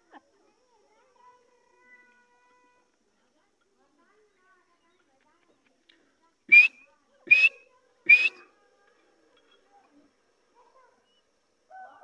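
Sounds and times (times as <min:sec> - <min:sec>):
bird whistled calls: 0:06.5 - 0:08.4.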